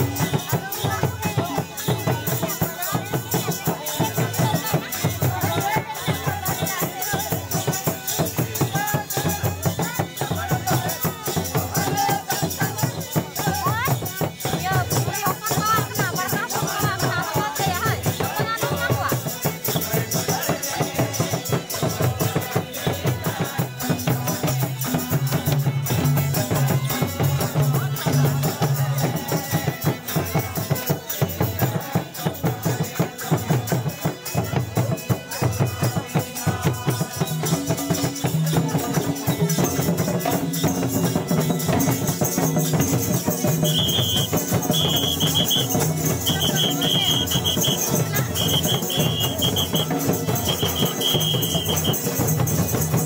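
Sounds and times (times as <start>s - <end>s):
drums: 0.0s - 53.0s
jingling rattling percussion: 0.0s - 53.0s
high whistle-like tone: 43.6s - 52.0s.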